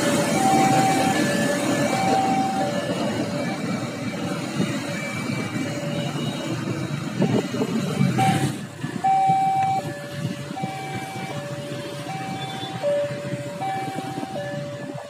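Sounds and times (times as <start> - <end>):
traffic passing: 0.0 - 15.0
alternating two-tone signal: 0.3 - 4.2, 8.1 - 9.9.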